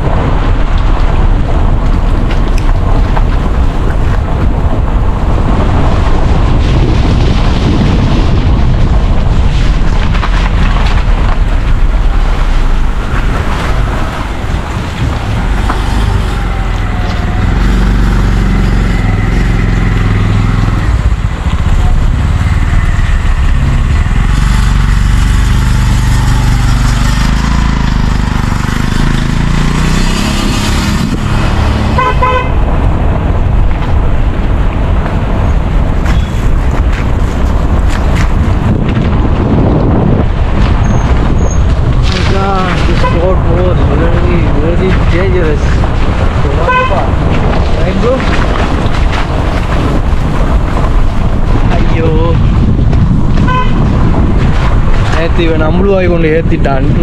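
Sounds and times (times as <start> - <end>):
car road noise: 0.0 - 57.0
wind buffeting microphone: 0.0 - 57.0
vehicle horn short beeps: 32.0 - 32.6.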